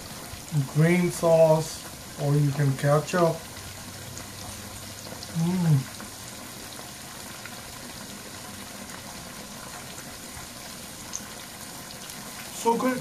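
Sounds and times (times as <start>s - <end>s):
man humming in enjoyment: 5.4s - 5.9s.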